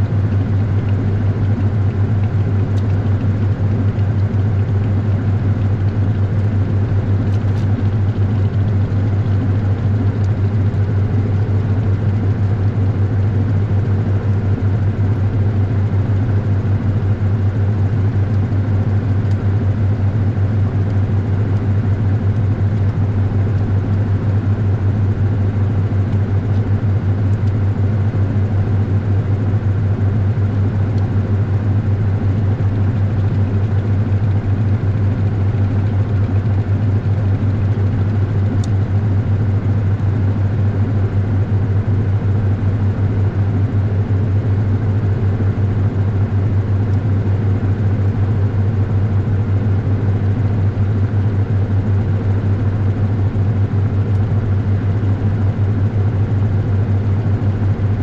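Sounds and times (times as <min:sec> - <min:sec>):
washing machine running: 0:00.0 - 0:58.0.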